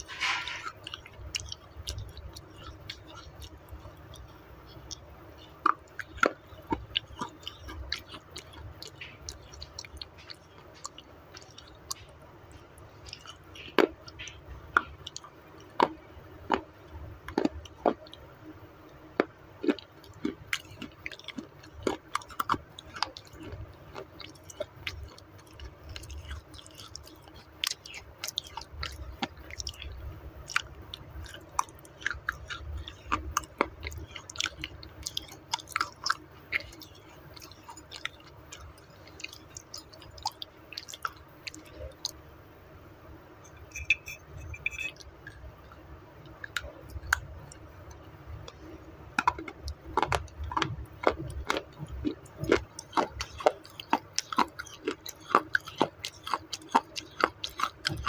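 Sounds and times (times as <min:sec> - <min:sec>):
wet mouth sounds: 0:00.0 - 0:18.2, 0:43.4 - 0:58.0
crunchy chewing: 0:00.0 - 0:42.2, 0:43.4 - 0:58.0.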